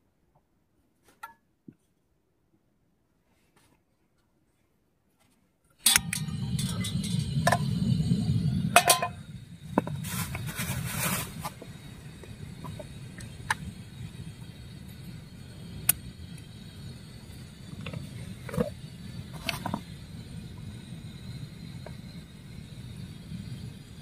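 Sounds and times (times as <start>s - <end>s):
gas burner running: 5.8s - 24.0s
metal pot and utensil clinks: 5.9s - 7.3s, 8.8s - 9.2s.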